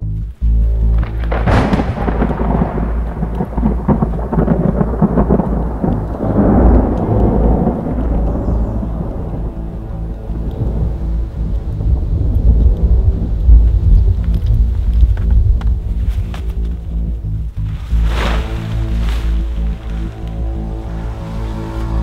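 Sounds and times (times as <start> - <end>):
deep rolling thunder rumble: 0.6 - 22.0
thunder crack: 1.0 - 16.0.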